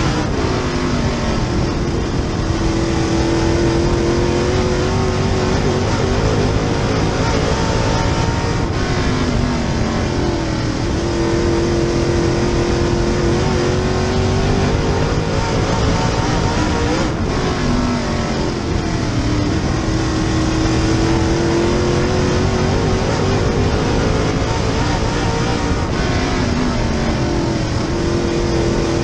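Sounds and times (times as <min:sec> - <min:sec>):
race car engine at full load: 0:00.0 - 0:29.0.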